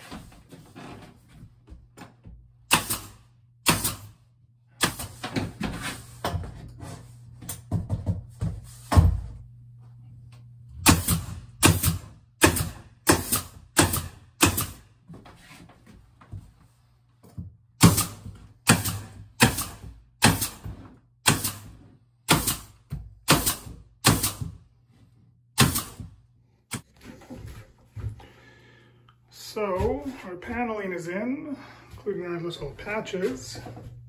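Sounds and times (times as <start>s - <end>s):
pneumatic stapler firing: 2.7s - 4.1s, 10.8s - 14.8s, 17.8s - 21.7s, 22.3s - 24.5s, 25.6s - 26.0s
low steady hum: 5.4s - 11.6s, 26.8s - 34.0s.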